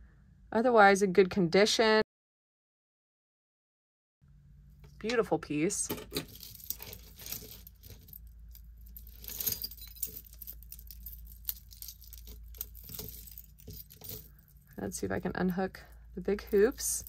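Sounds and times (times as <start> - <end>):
metal jewelry clinking: 5.9 - 17.0.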